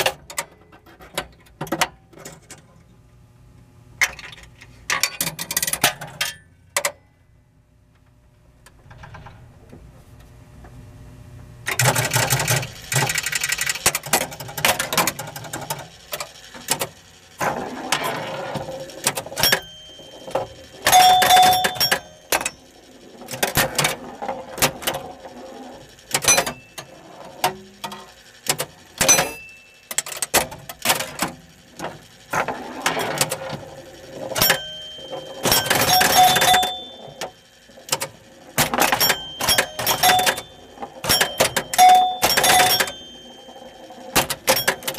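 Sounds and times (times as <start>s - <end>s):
pinball relay clicks: 11.7s - 44.9s
pinball bell rings: 17.5s - 30.4s, 31.0s - 44.9s.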